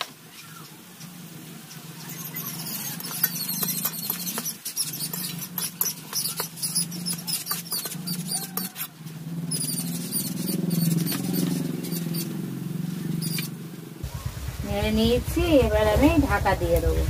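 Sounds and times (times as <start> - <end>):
steady low hum: 0.4 - 17.0
metal spatula scraping a pan: 2.2 - 8.9.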